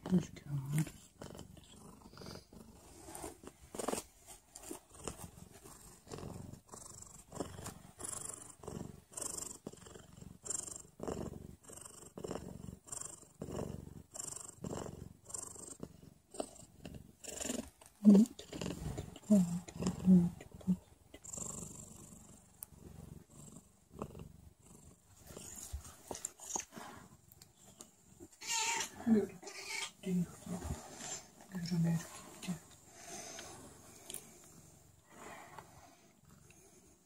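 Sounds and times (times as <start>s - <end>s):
cat purring: 0.0s - 37.0s
cat vocal sound: 28.2s - 30.0s.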